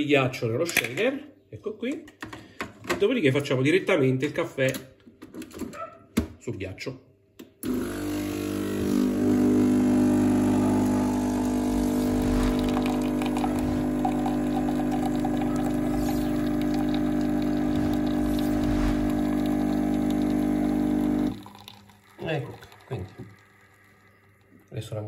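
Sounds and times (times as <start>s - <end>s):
coffee machine pump humming: 7.6s - 24.7s
coffee pouring into cup: 7.8s - 24.8s.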